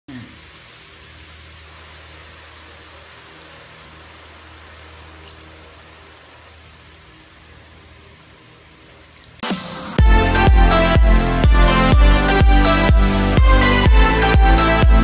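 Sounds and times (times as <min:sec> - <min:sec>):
faint steady hiss: 0:00.1 - 0:10.4.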